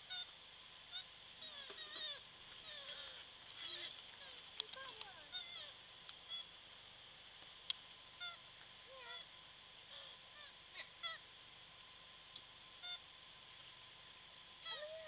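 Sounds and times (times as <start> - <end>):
short squeaky animal calls: 0.0 - 0.3, 6.3 - 6.5, 8.2 - 8.4, 12.8 - 13.1.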